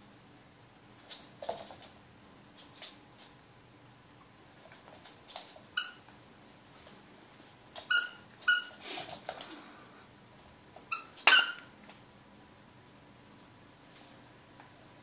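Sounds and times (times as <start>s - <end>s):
squeaky toy squeaking: 7.9s - 8.8s, 10.9s - 11.6s.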